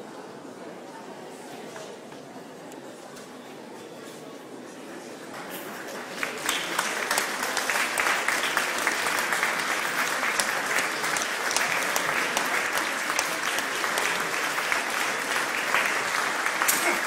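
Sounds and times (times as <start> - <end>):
audience applauding: 5.8 - 17.0.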